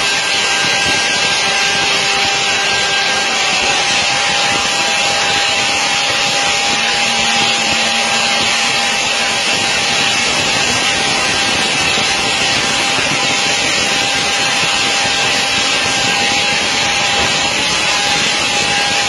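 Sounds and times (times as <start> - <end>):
aircraft machinery whine and hiss: 0.0 - 19.0
constant mid-pitched tone: 0.0 - 19.0.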